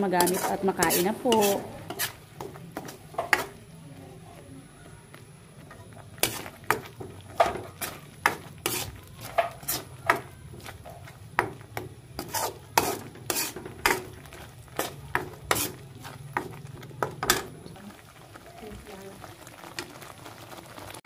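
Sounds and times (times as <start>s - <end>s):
spatula scraping a frying pan: 0.0s - 3.7s, 6.0s - 17.6s.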